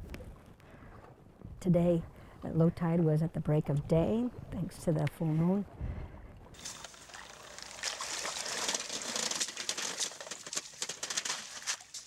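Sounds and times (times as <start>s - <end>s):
water splashing and trickling: 6.4s - 12.0s
wire mesh clicking and rattling: 6.6s - 12.0s.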